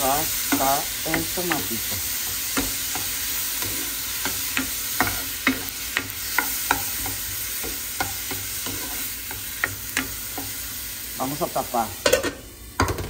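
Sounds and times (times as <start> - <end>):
vegetables sizzling in a frying pan: 0.0 - 13.0
plastic spoon knocking on pan: 12.8 - 13.0.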